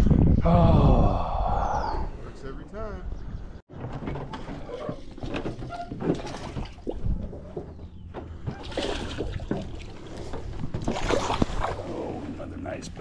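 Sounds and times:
water splashing and trickling: 4.8 - 13.0.

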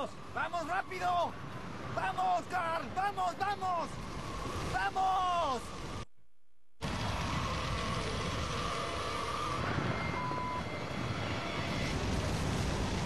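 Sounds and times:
tornado wind roaring: 0.1 - 6.0, 6.8 - 13.0
short beep: 10.0 - 10.8.

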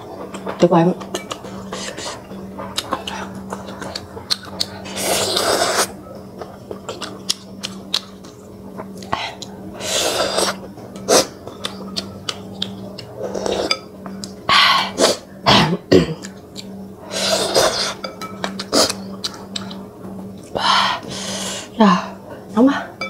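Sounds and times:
noodle slurping: 4.9 - 5.9.

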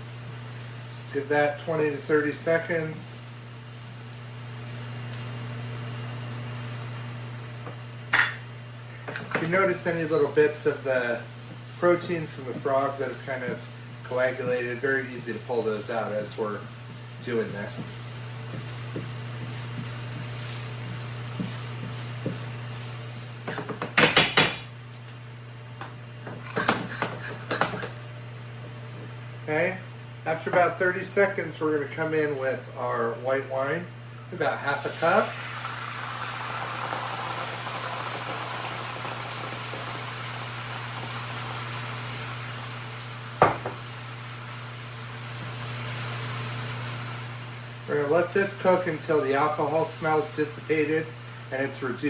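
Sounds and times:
wine hissing in hot pan: 0.0 - 25.4, 26.1 - 52.0
steady low hum: 0.0 - 36.0.

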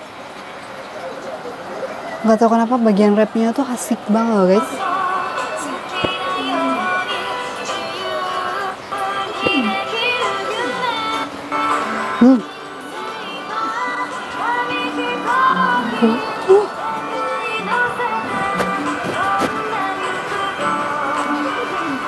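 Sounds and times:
acoustic guitars: 2.3 - 22.0
woman singing pop ballad: 3.4 - 22.0
instrumental backing: 4.6 - 22.0.

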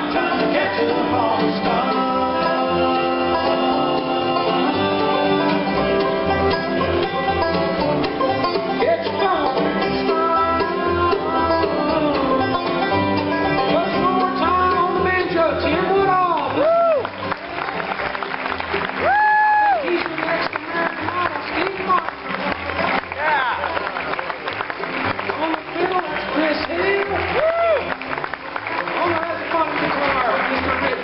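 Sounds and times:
upright bass beat: 0.0 - 17.8
bluegrass band playing: 0.0 - 31.0.

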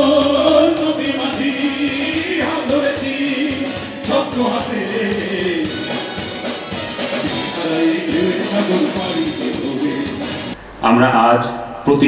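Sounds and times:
men singing together: 0.0 - 6.2, 7.2 - 10.6
live rock band playing: 0.0 - 10.6.

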